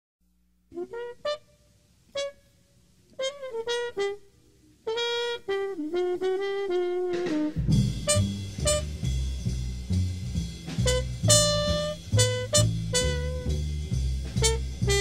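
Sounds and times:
solo wind instrument: 0.7 - 15.0
bass: 4.9 - 15.0
drums: 4.9 - 15.0.

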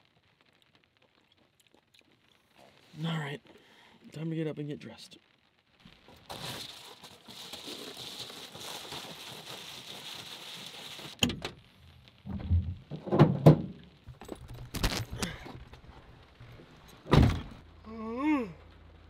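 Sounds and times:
loud thumps and knocks: 12.3 - 14.7.

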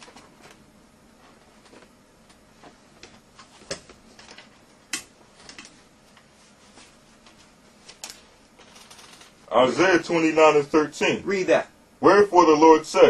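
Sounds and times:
book pages rustling: 1.2 - 3.8.

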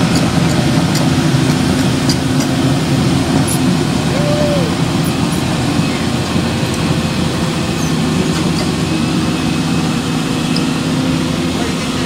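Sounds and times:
engine droning: 0.0 - 12.0.

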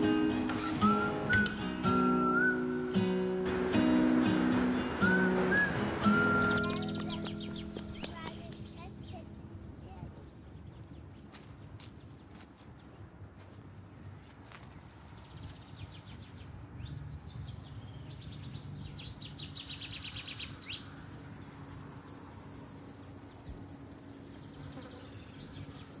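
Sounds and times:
bird chirping trill: 0.0 - 11.3, 15.8 - 26.0
short high chirps: 5.0 - 7.8.

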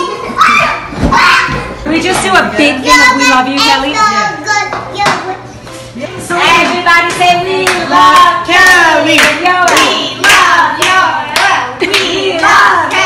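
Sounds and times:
voices singing: 6.0 - 13.0
hand claps: 9.2 - 13.0.

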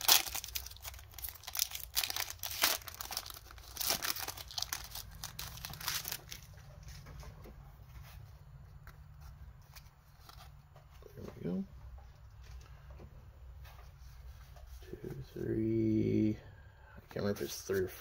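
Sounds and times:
foil wrapper tearing and crinkling: 0.0 - 6.5
cards rustling: 0.0 - 7.4.

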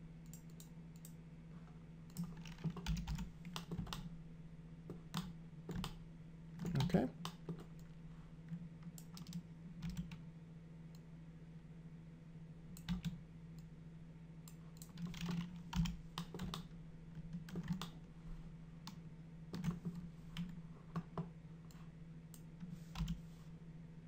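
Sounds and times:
steady low hum: 0.0 - 24.0
keyboard and mouse clicks: 0.2 - 1.2, 2.1 - 4.1, 4.9 - 6.0, 6.6 - 7.9, 8.5 - 10.2, 14.5 - 18.0, 18.8 - 23.2.

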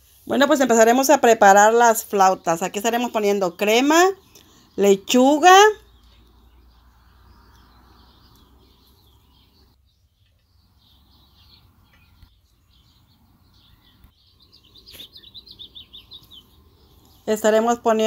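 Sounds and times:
faint bird chirps: 2.2 - 18.0
quick high bird chirps: 13.6 - 16.6.

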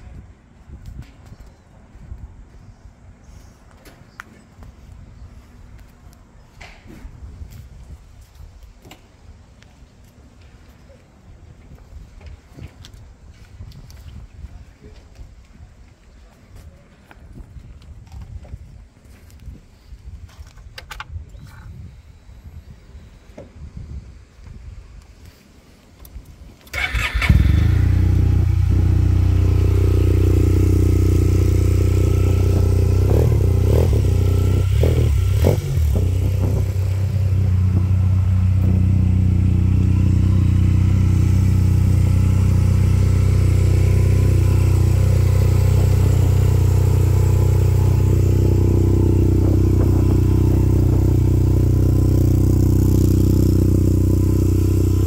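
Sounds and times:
scooter engine starting and idling: 26.6 - 55.0.

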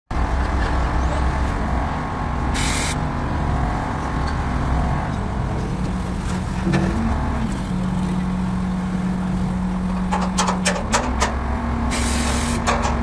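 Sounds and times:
crane diesel engine running: 0.2 - 13.0
short hiss: 2.6 - 3.0.

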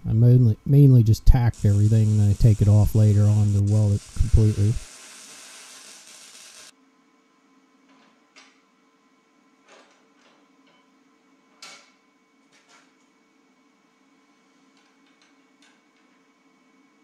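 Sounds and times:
welder arc crackling: 1.2 - 6.7.

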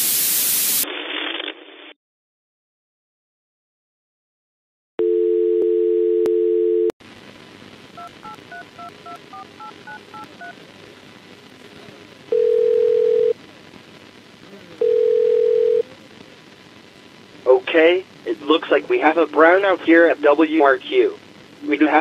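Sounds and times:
line hiss: 0.0 - 0.8, 16.1 - 22.0
telephone dial tone: 5.0 - 6.9, 12.4 - 13.3, 14.8 - 15.8
touch tones dialing: 8.0 - 10.6.

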